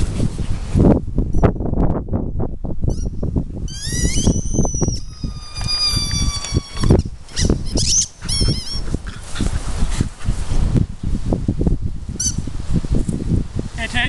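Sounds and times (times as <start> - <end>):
high-pitched animal cries: 3.7 - 8.9.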